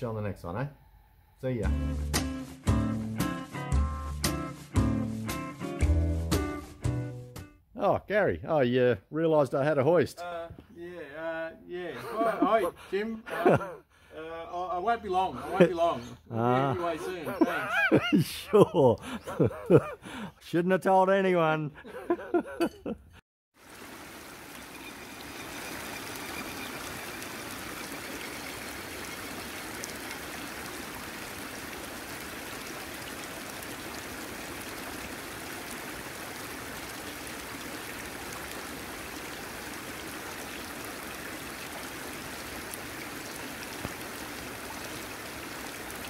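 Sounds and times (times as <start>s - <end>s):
shallow water running over rocks: 23.6s - 46.0s.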